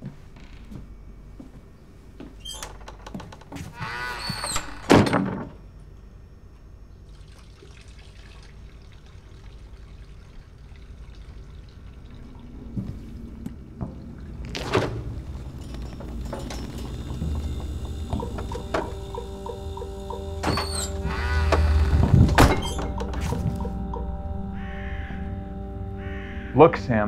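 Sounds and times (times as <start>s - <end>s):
wooden door creaking: 0.3s - 1.0s, 2.3s - 5.6s, 13.8s - 26.4s
door shutting with thunk: 15.9s - 24.0s.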